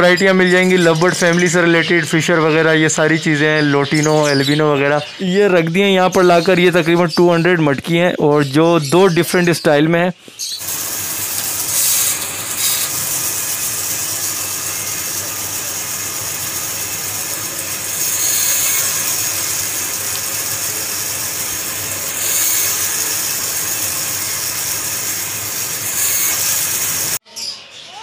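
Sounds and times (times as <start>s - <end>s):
band saw cutting wood: 10.4s - 27.2s.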